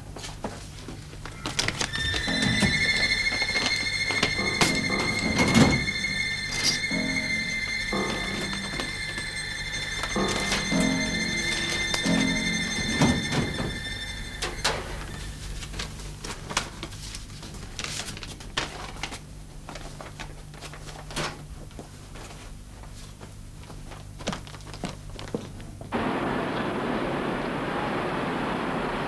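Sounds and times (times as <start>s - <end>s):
background music: 1.5s - 16.2s.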